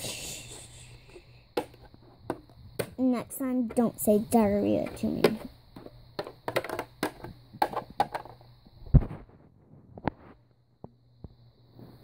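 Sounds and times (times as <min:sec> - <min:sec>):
plastic toys clicking: 0:06.2 - 0:08.4.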